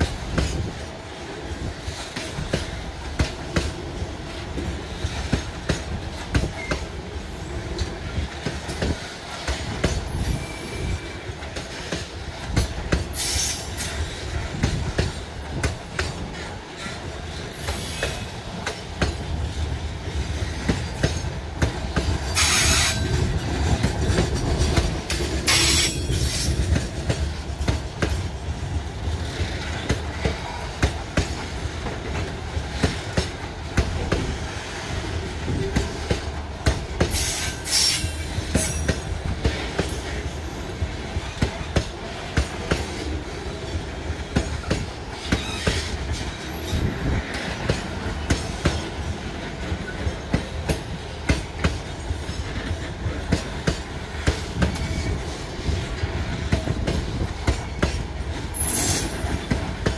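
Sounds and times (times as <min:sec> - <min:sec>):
freight train rumbling: 0:00.0 - 0:59.9
wheels clattering over rail joints: 0:07.6 - 0:28.3
high-pitched wheel squeals: 0:22.4 - 0:23.2.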